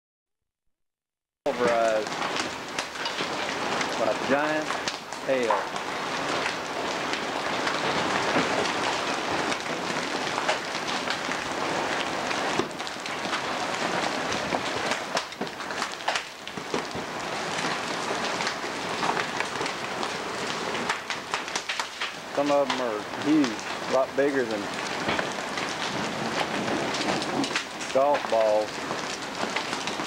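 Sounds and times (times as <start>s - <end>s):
hailstones clicking and cracking: 1.5s - 30.0s
heavy rain hissing: 1.5s - 30.0s.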